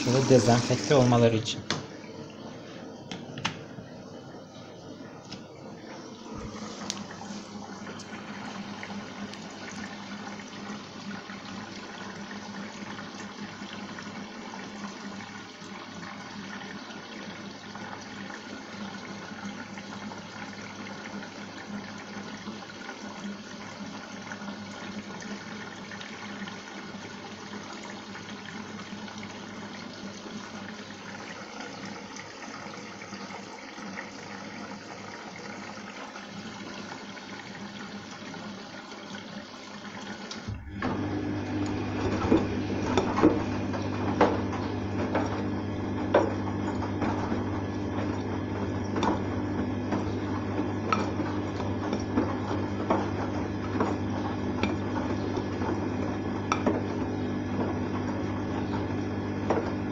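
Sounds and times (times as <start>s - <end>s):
water rushing into washing machine: 0.0s - 59.9s.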